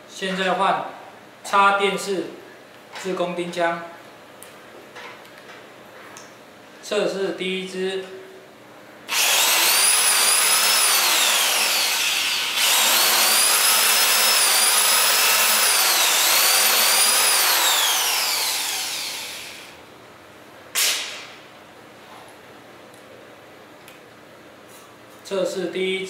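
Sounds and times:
screw grinding into steel: 0:09.1 - 0:19.6
electric drill motor whine: 0:09.1 - 0:19.8.

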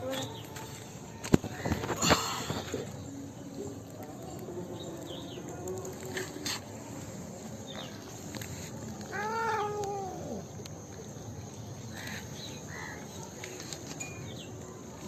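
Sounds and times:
outdoor background noise: 0:00.0 - 0:15.0
cat meowing: 0:09.1 - 0:10.4.

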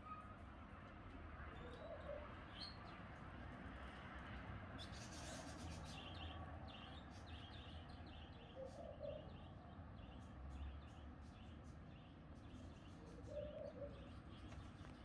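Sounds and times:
dove cooing: 0:13.2 - 0:14.0.

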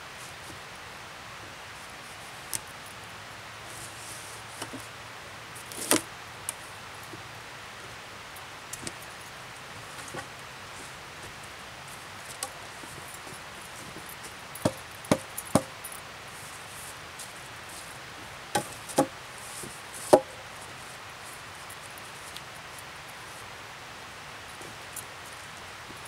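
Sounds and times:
wooden log knocks: 0:14.6 - 0:15.7, 0:20.1 - 0:20.3.

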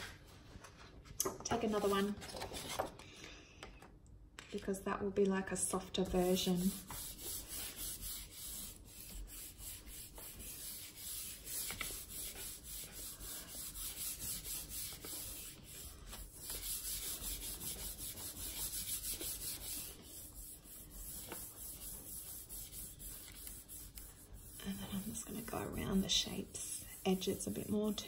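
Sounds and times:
hands rubbing paper: 0:06.2 - 0:28.0.

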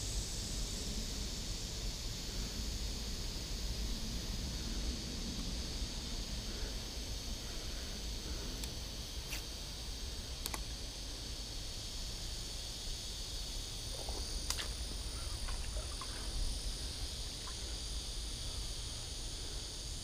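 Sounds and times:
insects chirping: 0:00.0 - 0:20.0
sharp clicks: 0:10.4 - 0:10.6.

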